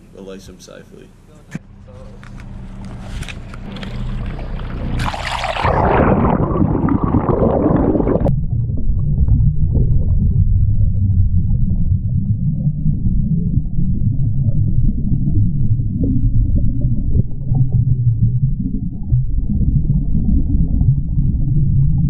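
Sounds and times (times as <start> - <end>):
muffled underwater rumble and gurgle: 1.4 - 22.0
water splashing at microphone: 2.9 - 12.3.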